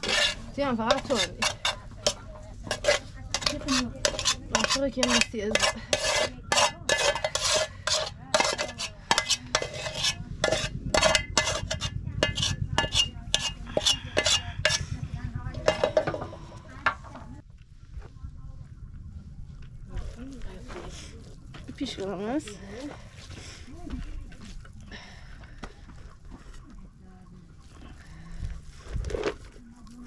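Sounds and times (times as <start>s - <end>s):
metal spoon scraping metal pot: 0.0s - 17.3s.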